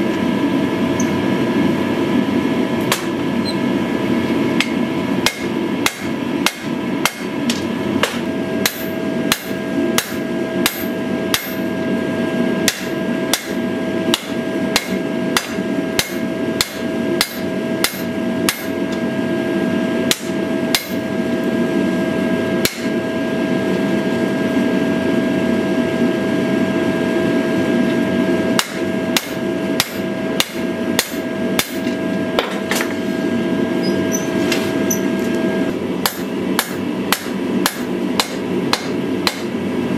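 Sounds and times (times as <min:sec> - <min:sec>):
held hum: 0:00.0 - 0:39.9
hammer striking steel on anvil: 0:02.9 - 0:03.2, 0:04.6 - 0:11.7, 0:12.6 - 0:18.8, 0:20.1 - 0:21.0, 0:22.6 - 0:22.9, 0:28.6 - 0:32.9, 0:36.0 - 0:39.5.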